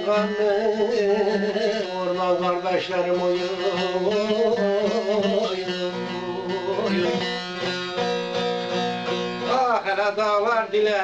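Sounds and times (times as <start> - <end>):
person singing: 0.0 - 7.4
long-necked lute melody: 0.0 - 11.0.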